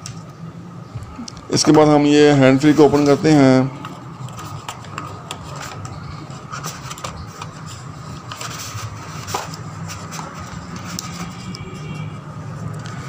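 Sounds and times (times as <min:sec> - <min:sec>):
steady low hum: 0:00.0 - 0:13.0
cardboard and plastic clicks: 0:03.8 - 0:07.6.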